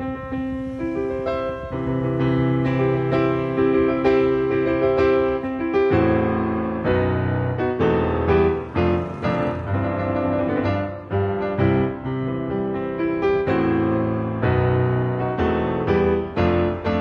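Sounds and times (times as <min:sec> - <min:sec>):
piano chords: 0:00.0 - 0:17.0.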